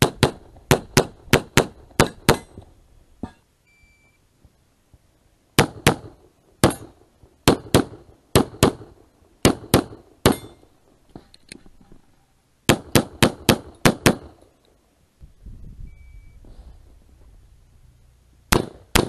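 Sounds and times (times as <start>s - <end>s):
pistol shots: 0.0s - 2.6s, 5.6s - 10.6s, 12.7s - 14.4s, 18.5s - 19.0s.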